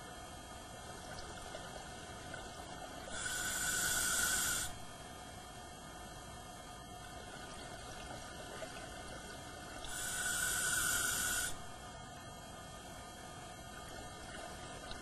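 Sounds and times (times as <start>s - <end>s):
underwater background: 0.0s - 15.0s
diver breathing through regulator: 3.1s - 4.8s, 9.9s - 11.6s.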